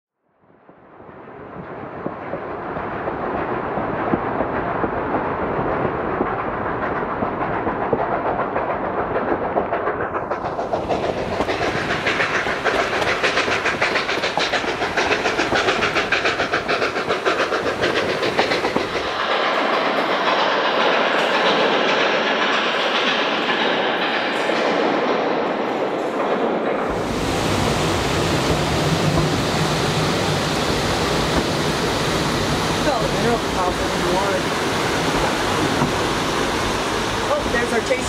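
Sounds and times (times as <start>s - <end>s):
steam train rumble: 1.1s - 38.0s
wheels clattering on rails: 6.2s - 31.8s.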